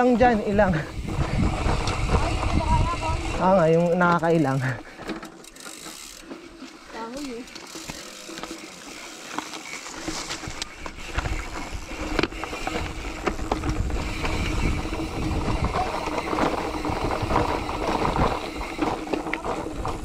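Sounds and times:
bicycle clicks and rattles: 0.0 - 20.0
low rumble: 0.8 - 3.5.

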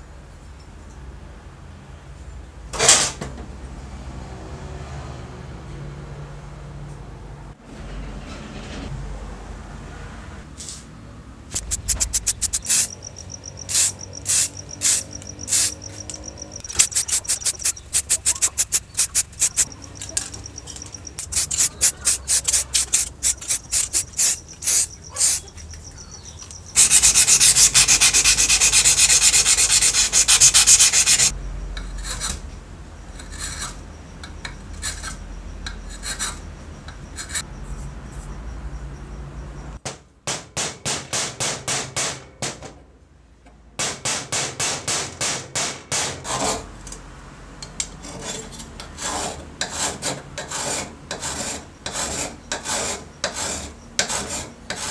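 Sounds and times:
loud steady hiss: 11.5 - 15.9, 21.2 - 25.4
rubbing strokes on metal: 11.6 - 31.4, 49.0 - 54.9.

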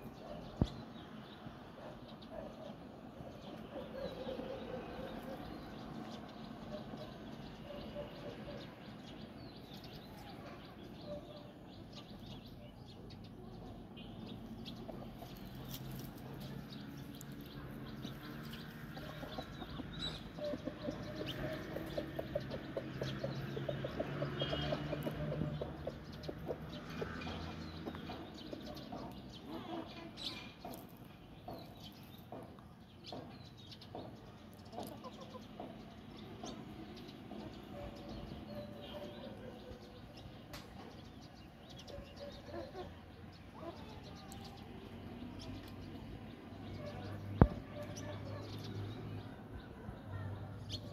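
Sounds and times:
hens clucking: 17.6 - 30.9.

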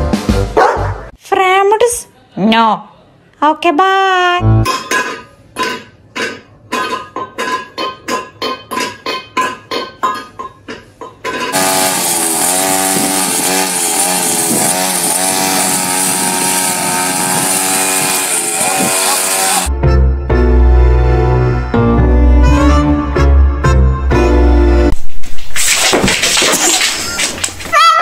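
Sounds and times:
plucked string notes: 4.4 - 4.8
string trimmer revving: 11.5 - 19.7.

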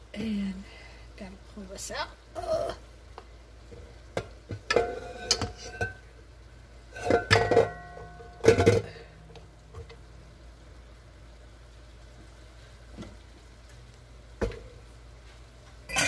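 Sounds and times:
metal cookware clanking: 4.6 - 6.1, 6.9 - 9.1.

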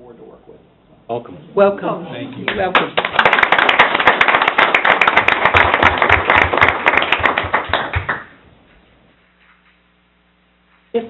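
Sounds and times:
people applauding: 2.4 - 8.4.

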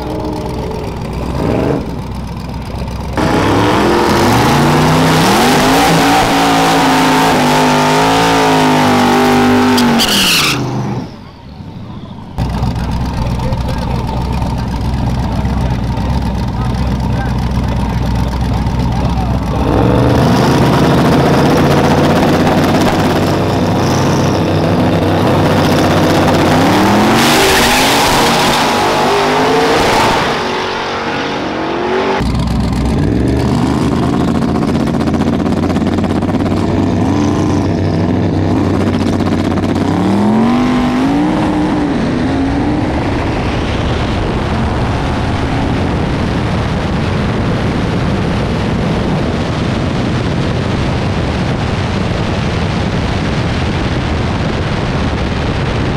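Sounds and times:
car engine revving hard: 0.0 - 2.1, 3.2 - 11.1, 18.1 - 46.3.

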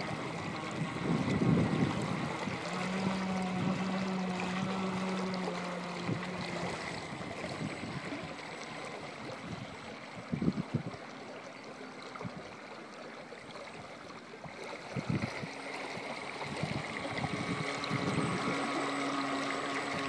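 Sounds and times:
water lapping at shore: 0.0 - 20.0
faint high whine: 14.9 - 20.0
low rushes: 14.9 - 20.0.

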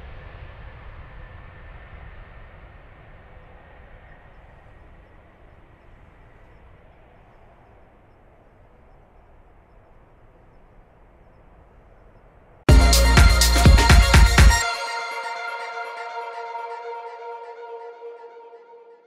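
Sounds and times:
jet engine rumble: 0.0 - 12.7
faint high engine whine: 0.0 - 12.8.

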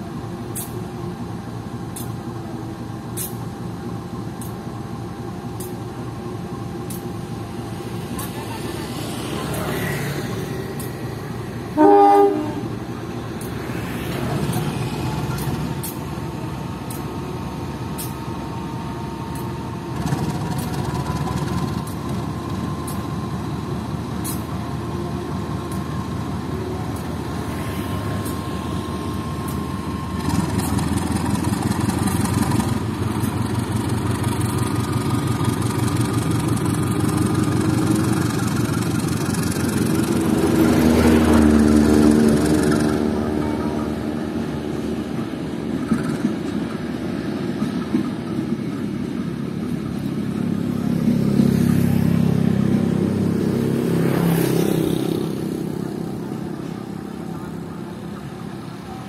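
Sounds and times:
diesel locomotive engine running: 0.0 - 59.0
locomotive horn blast: 11.6 - 12.9.

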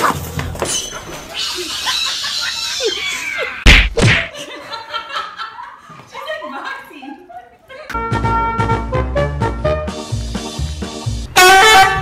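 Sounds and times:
loud thumps: 3.7 - 4.3.

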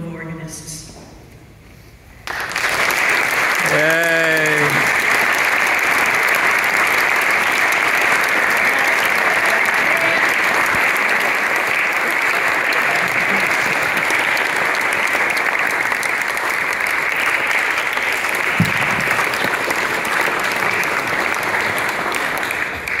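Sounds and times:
audience applauding: 2.2 - 23.0.

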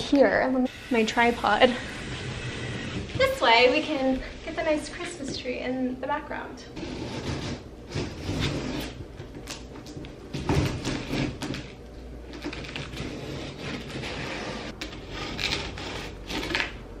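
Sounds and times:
tape and cardboard rustling: 7.0 - 16.8
scissors cutting packing tape: 7.1 - 16.8.

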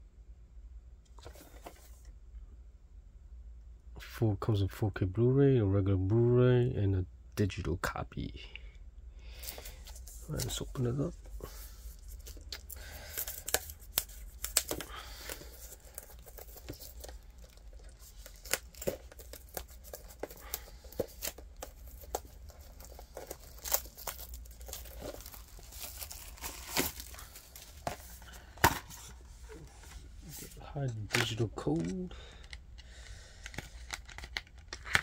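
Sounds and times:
plastic wrapping tearing and crinkling: 12.0 - 28.6, 33.4 - 35.0.

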